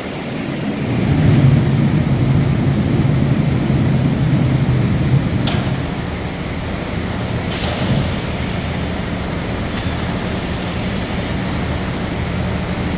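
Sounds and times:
machine hum: 0:00.0 - 0:12.9
compressed air hiss: 0:07.0 - 0:11.9.

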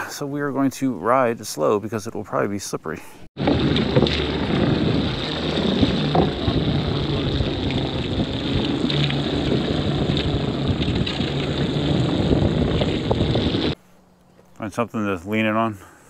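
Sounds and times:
wind over microphone: 0:03.4 - 0:13.8
low hum: 0:03.4 - 0:14.6.

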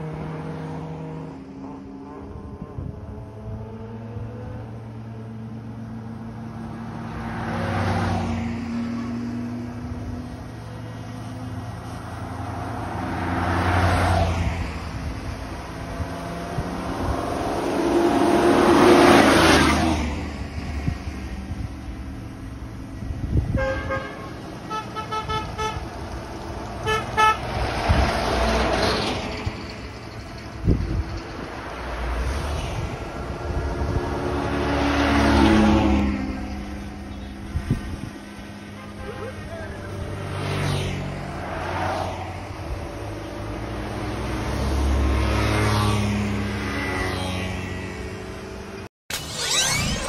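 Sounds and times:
car passing close by: 0:00.0 - 0:22.2, 0:26.0 - 0:29.9, 0:30.6 - 0:38.8, 0:40.0 - 0:48.8
vehicle engines running: 0:00.0 - 0:50.0
vehicle horn tooting: 0:23.5 - 0:25.8, 0:26.8 - 0:27.4, 0:38.8 - 0:39.6.

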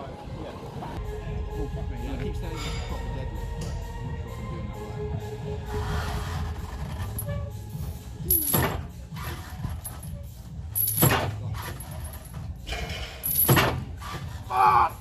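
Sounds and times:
steel frame and chains clanking: 0:06.5 - 0:14.4.

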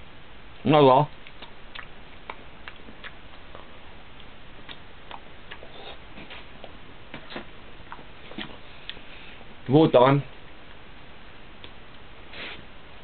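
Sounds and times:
person chewing pastry: 0:01.1 - 0:09.5
steady hiss: 0:12.0 - 0:13.0.

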